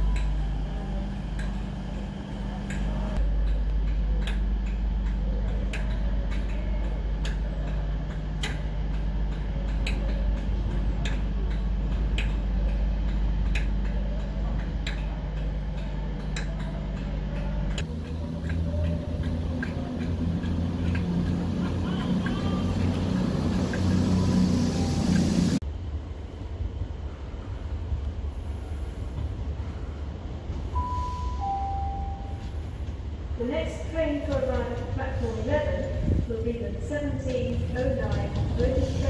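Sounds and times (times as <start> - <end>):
diesel locomotive engine idling: 0.0 - 25.6.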